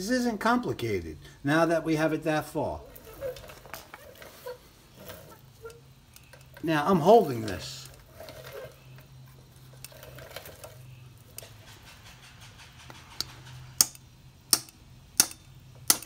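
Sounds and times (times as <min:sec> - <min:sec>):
small hammer tapping metal: 0:12.9 - 0:16.0.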